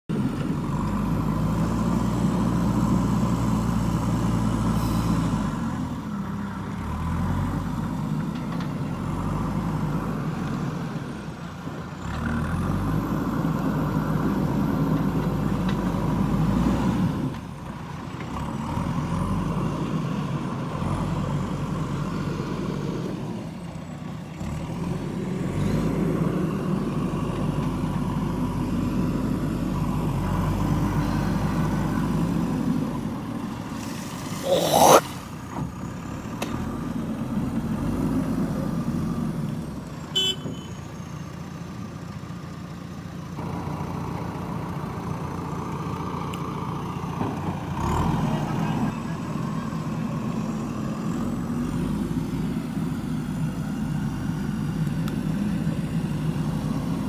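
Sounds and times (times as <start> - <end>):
diesel engine working under load: 0.1 - 57.0
bucket digging sand and mud: 33.8 - 35.2.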